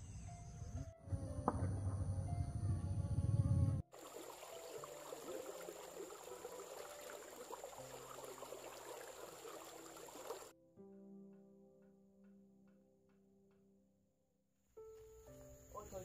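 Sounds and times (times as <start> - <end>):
stream running over stones: 3.9 - 10.5.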